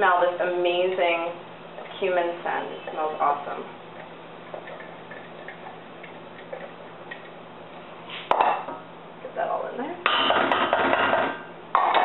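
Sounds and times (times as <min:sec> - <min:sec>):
wooden spoon stirring in saucepan: 0:02.8 - 0:07.5.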